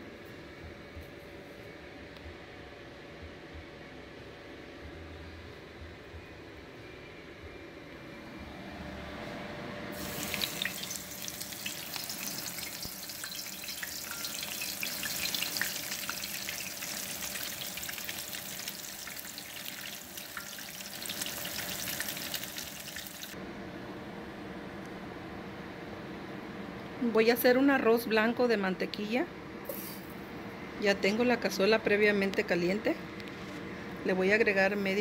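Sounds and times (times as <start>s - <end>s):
fish sizzling in hot oil: 10.0s - 23.4s.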